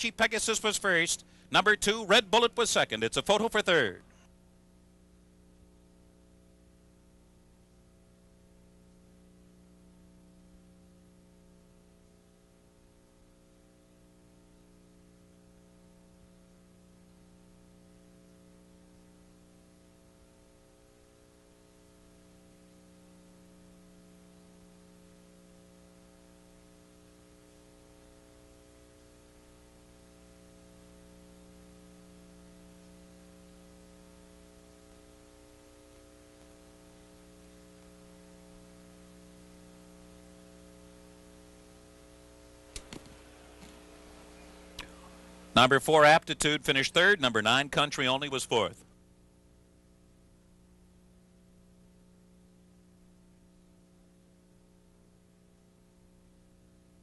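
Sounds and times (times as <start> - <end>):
faint electrical hum: 0.0 - 57.0
light hiss: 18.0 - 45.6.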